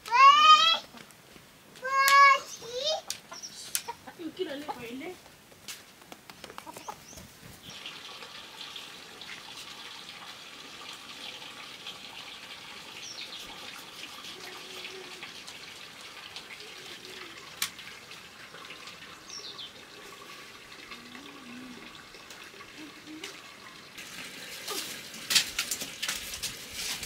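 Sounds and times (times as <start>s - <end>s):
bird chirping: 2.4s - 4.2s
water running from tap: 7.6s - 27.0s.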